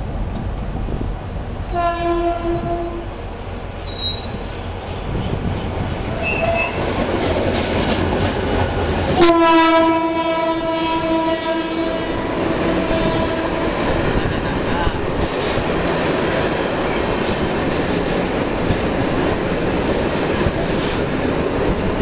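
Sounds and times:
freight train rumbling and clattering: 0.0s - 22.0s
locomotive air horn blasts: 1.7s - 3.1s, 6.2s - 6.8s, 9.2s - 13.7s.

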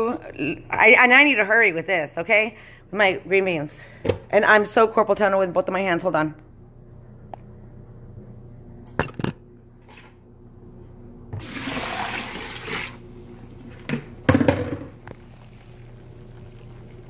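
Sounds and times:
water pouring into strainer: 11.4s - 13.0s.

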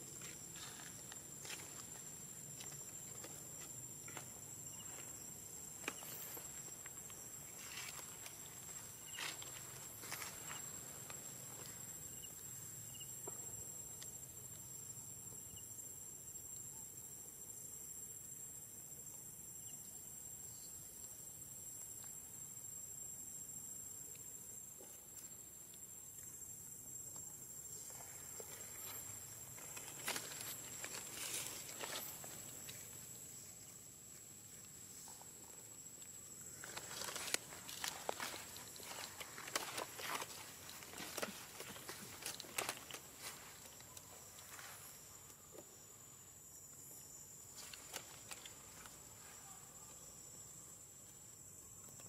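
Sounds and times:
rustling in grass and leaves: 0.0s - 11.9s, 28.0s - 45.3s, 47.4s - 49.5s
high insect tone: 0.0s - 52.0s
animal footsteps rustling in leaves: 36.5s - 43.8s.

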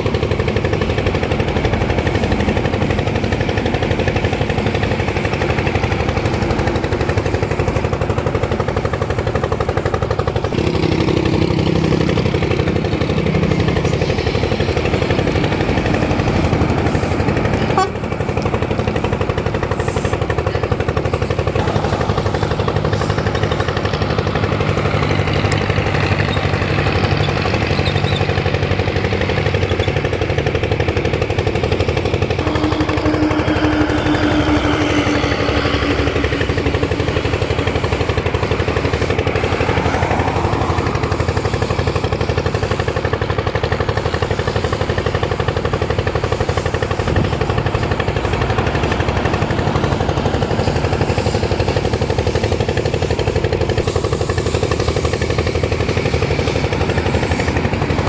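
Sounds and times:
diesel trucks passing: 0.0s - 58.0s
steady pitched tone: 12.0s - 25.9s, 31.0s - 43.4s.

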